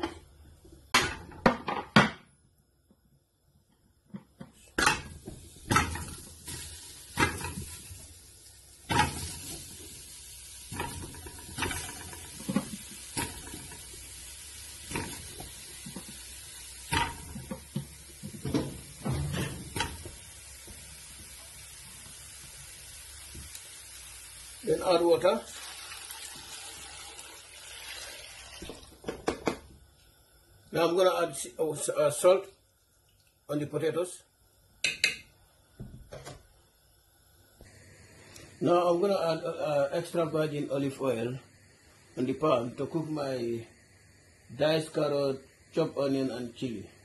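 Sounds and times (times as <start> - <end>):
steady low hiss: 0.0 - 47.0
potatoes knocking in metal pot: 4.8 - 7.8, 16.9 - 20.2.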